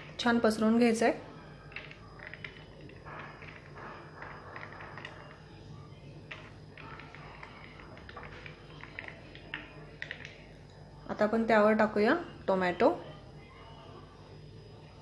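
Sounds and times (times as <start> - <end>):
low background hum: 0.0 - 15.0
crackling and rustling food: 1.3 - 10.9.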